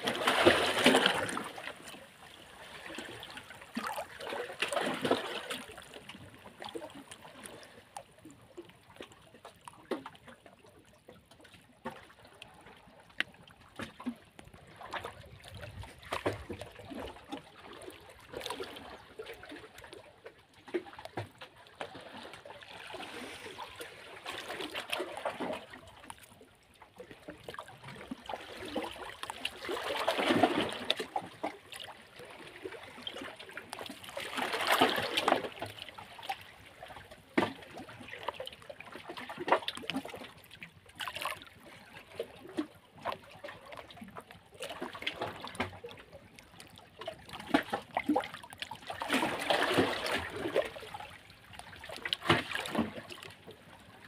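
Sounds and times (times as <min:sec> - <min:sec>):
waves splashing against rocks: 0:00.0 - 0:02.0, 0:27.9 - 0:35.9, 0:49.0 - 0:51.0.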